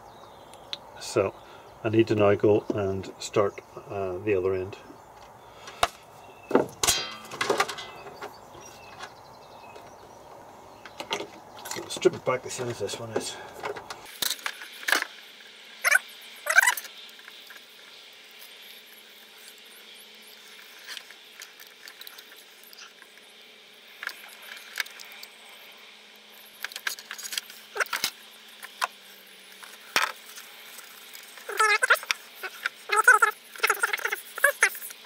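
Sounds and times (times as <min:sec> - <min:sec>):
squeaks: 0:15.8 - 0:16.9, 0:31.5 - 0:34.8.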